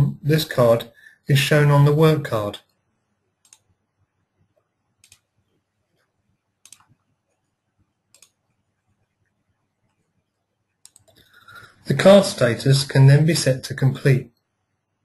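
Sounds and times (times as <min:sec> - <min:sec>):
faint computer mouse clicks: 0:03.4 - 0:03.7, 0:05.0 - 0:05.3, 0:06.6 - 0:07.0, 0:08.1 - 0:08.4, 0:10.8 - 0:11.4.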